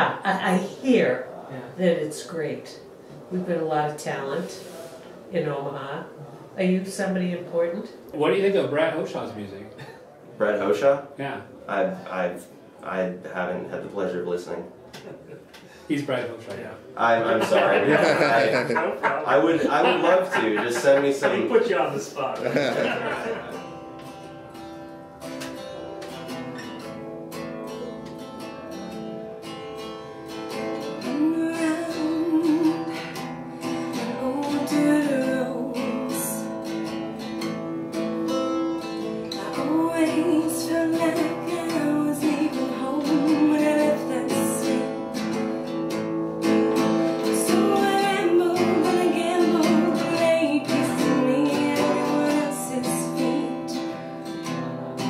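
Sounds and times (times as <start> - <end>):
acoustic guitar: 0.0 - 55.0
woman singing: 31.0 - 33.1, 34.0 - 36.7, 39.3 - 45.2, 47.2 - 53.9.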